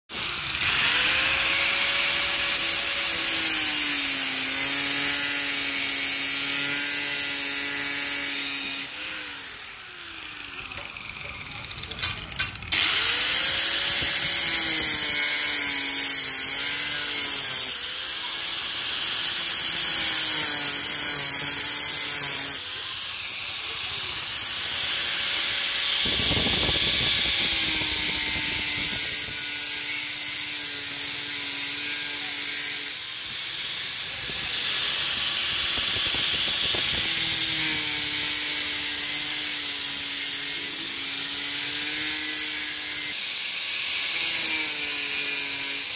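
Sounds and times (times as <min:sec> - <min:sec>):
angle grinder cutting metal: 0:00.1 - 0:45.9.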